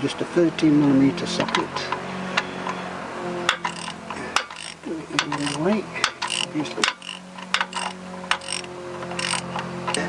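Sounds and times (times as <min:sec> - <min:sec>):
hand ratchet clicking: 0:03.5 - 0:10.0.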